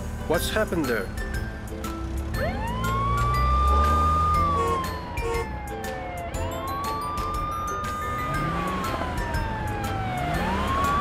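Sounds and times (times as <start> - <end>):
background music: 0.0 - 11.0
police siren wailing: 2.3 - 11.0.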